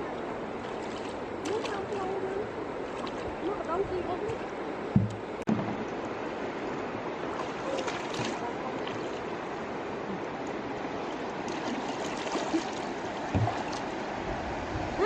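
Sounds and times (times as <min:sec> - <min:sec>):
river water sloshing: 0:00.0 - 0:15.0
small splashes: 0:00.6 - 0:06.0, 0:07.2 - 0:10.2, 0:10.9 - 0:14.0.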